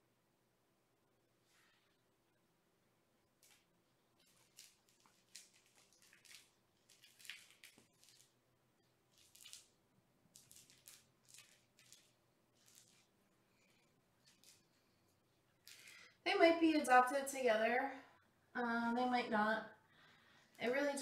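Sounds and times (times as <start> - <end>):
toy rustling and scuffing: 3.4 - 8.4, 9.1 - 16.0.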